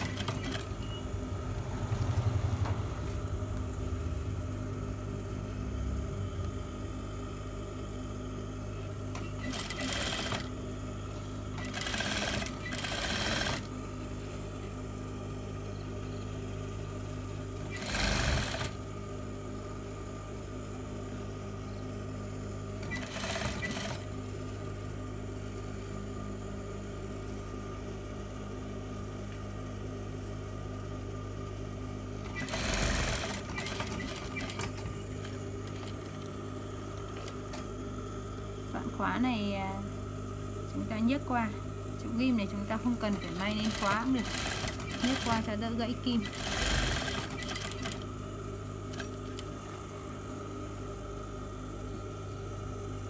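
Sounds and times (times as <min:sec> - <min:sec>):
sewing machine running: 0:00.0 - 0:03.3, 0:09.1 - 0:10.5, 0:11.5 - 0:13.7, 0:17.6 - 0:18.8, 0:22.8 - 0:24.1, 0:32.3 - 0:36.3, 0:43.0 - 0:48.1.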